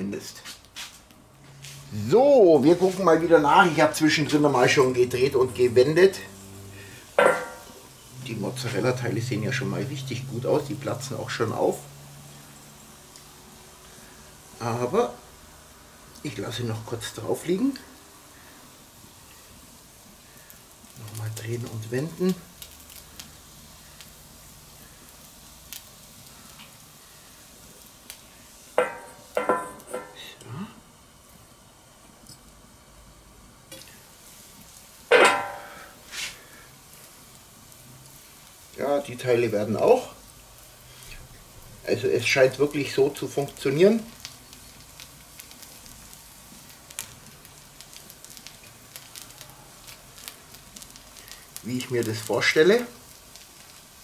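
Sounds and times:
fire crackling and popping: 0:00.0 - 0:54.0
food sizzling on a griddle: 0:00.0 - 0:54.0
metal cloche clanking on plate: 0:35.1 - 0:35.6.

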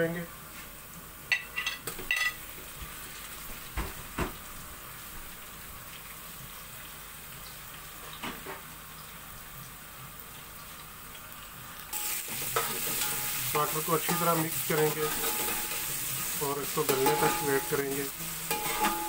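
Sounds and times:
oil sizzling in a pot: 0:00.0 - 0:19.0.

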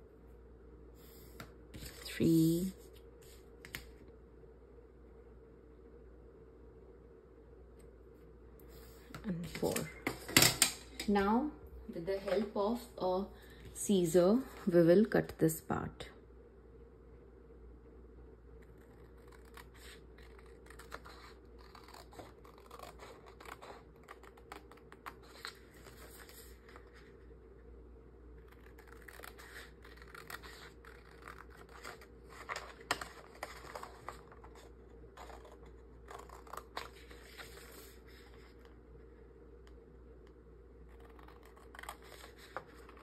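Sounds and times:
scissors cutting paper: 0:18.7 - 0:25.4, 0:28.4 - 0:37.2, 0:40.9 - 0:43.0.

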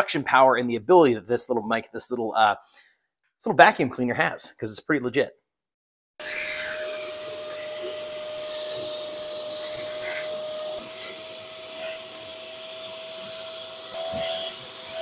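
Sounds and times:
vacuum cleaner sucking ash: 0:06.2 - 0:15.0.

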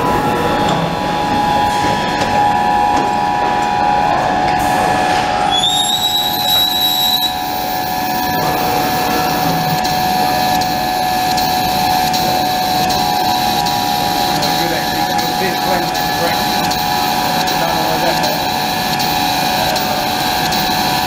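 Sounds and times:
high whine of axis drives: 0:00.0 - 0:21.0
punch press mechanical hum: 0:00.0 - 0:21.0.

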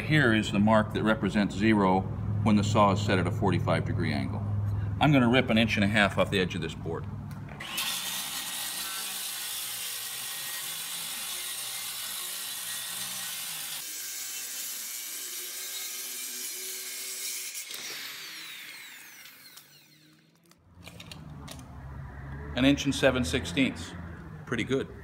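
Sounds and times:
circular saw cutting plywood: 0:07.6 - 0:20.5
saw blade coasting down whine: 0:17.5 - 0:20.4.

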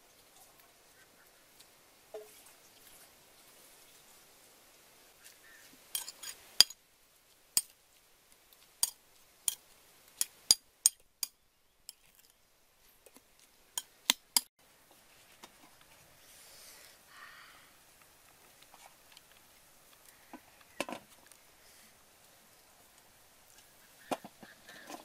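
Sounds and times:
metal spoon clinking on ceramic bowl: 0:06.0 - 0:06.8.

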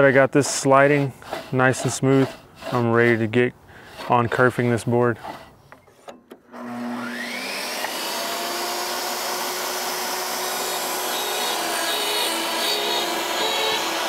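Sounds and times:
saw blade cutting board: 0:00.0 - 0:14.0
table saw motor whine: 0:06.4 - 0:14.0.

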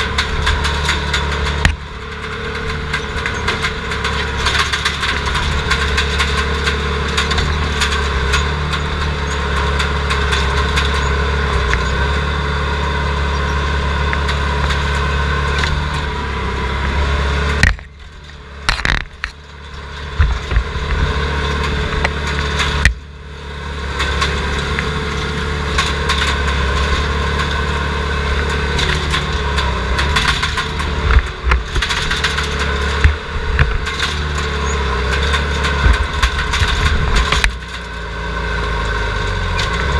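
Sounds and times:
knocks and clanks: 0:00.0 - 0:23.1, 0:23.8 - 0:38.1
diesel engine running: 0:00.0 - 0:39.9.

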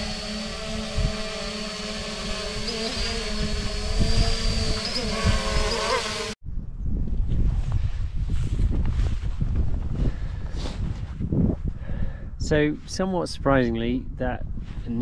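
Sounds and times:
wind rumbling on microphone: 0:00.0 - 0:01.5, 0:02.2 - 0:15.0
drone propellers humming: 0:00.0 - 0:06.4.

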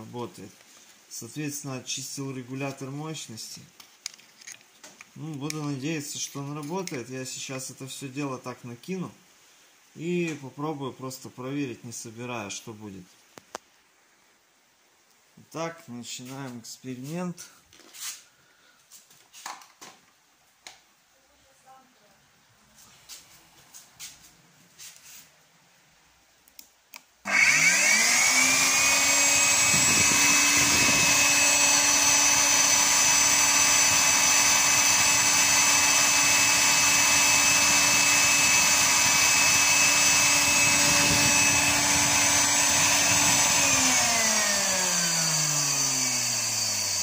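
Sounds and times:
vacuum motor high whine: 0:27.3 - 0:47.0.

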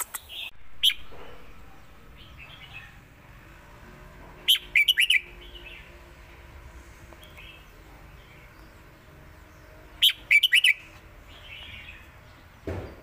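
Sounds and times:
bird singing sharp notes: 0:00.0 - 0:01.4, 0:09.9 - 0:12.0.

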